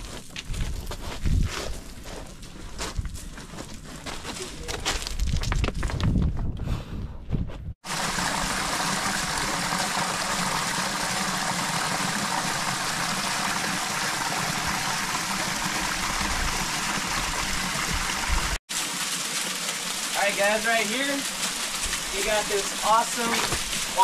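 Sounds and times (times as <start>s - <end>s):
small waterfall splashing: 7.8s - 24.0s.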